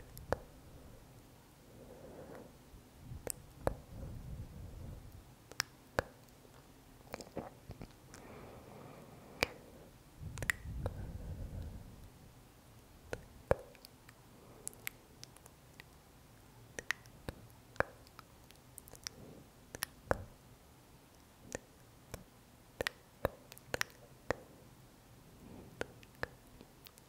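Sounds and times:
lip and tongue clicks: 5.5s - 8.2s, 10.3s - 11.0s, 13.1s - 16.0s, 16.7s - 20.3s, 21.1s - 24.4s, 25.8s - 27.0s.

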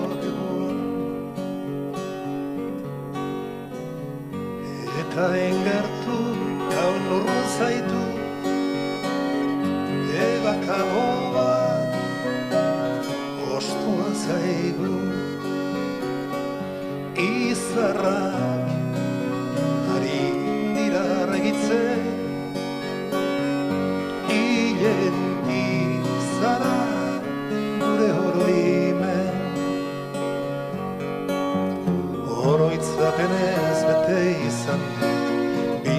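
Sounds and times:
man singing: 0.0s - 0.9s, 4.6s - 8.8s, 9.9s - 15.6s, 17.1s - 22.9s, 24.1s - 29.7s, 32.2s - 35.9s
accordion: 0.0s - 35.9s
acoustic guitars: 0.0s - 35.9s
keyboard: 0.0s - 35.9s
wavering melody line: 5.0s - 35.9s.

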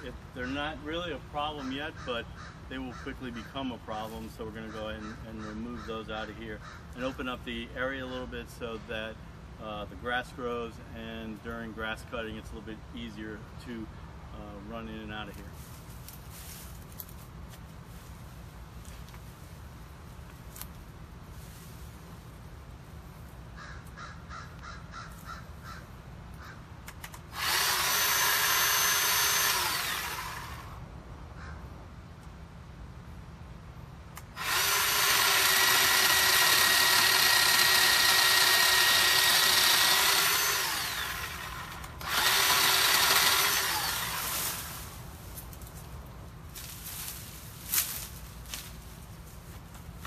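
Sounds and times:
crow cawing: 1.6s - 3.5s, 6.6s - 7.0s, 23.6s - 26.6s, 31.4s - 31.6s
electric chainsaw cutting: 27.0s - 30.8s, 34.2s - 45.0s.

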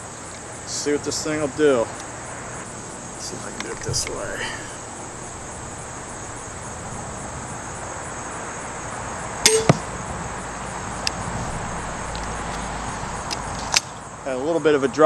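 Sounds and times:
sharp crack: 9.4s - 10.1s.

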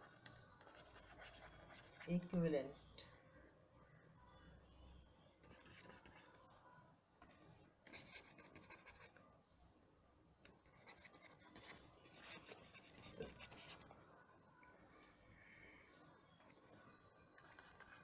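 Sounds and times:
stylus scratching on tablet: 0.0s - 2.8s, 5.4s - 6.7s, 7.3s - 9.4s, 10.5s - 18.0s.

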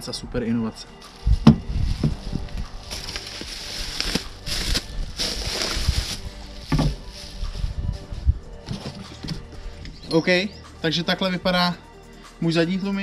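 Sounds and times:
packaging rustling and crinkling: 1.2s - 7.7s
parts knocking and thudding: 1.4s - 2.2s.

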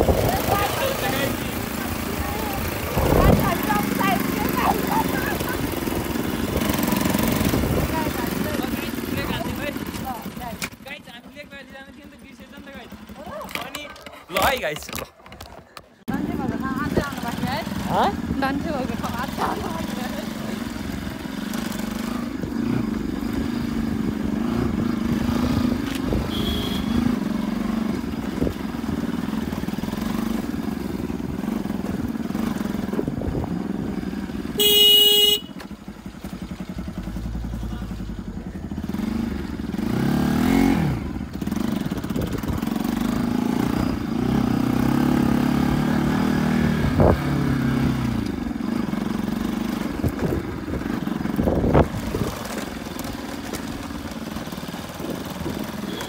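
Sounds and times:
motorcycle engine running: 0.0s - 56.0s
wind buffeting microphone: 2.6s - 4.0s, 50.0s - 52.4s
horn blast: 26.2s - 27.1s, 34.6s - 35.6s.

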